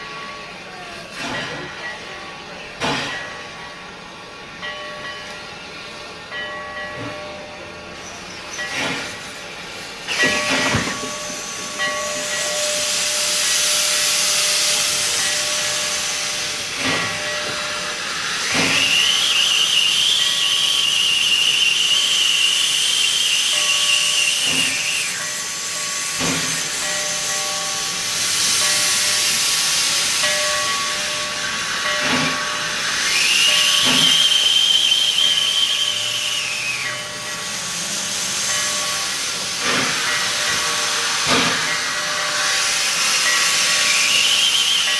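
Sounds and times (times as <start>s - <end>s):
steam locomotive hissing: 0.0s - 44.9s
steam whistle blasts: 17.8s - 26.3s, 33.0s - 37.4s, 42.3s - 44.9s.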